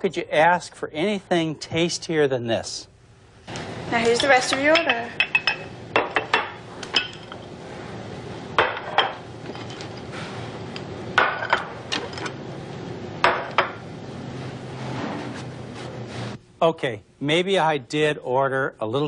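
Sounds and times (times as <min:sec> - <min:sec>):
dishes and plates clinking: 0:04.2 - 0:07.5, 0:08.6 - 0:10.1.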